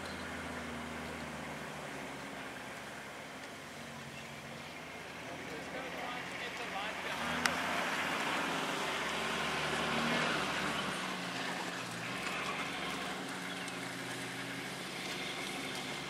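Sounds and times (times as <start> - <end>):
vehicle engine idling: 0.0 - 16.0.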